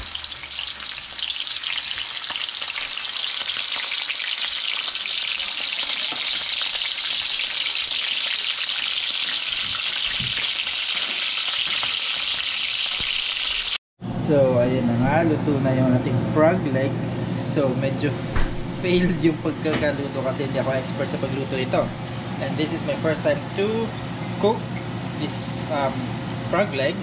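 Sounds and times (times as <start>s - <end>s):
frog legs sizzling in oil: 0.0s - 13.8s.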